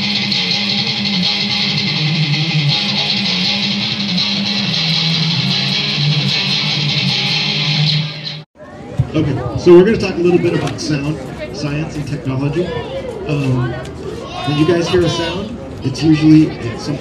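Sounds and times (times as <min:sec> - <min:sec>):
electric guitar through amplifier: 0:00.0 - 0:08.5.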